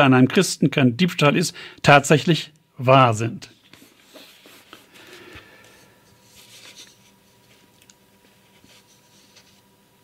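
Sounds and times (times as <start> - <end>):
faint steady hum: 0.0 - 10.0
paper rustling: 3.6 - 9.7.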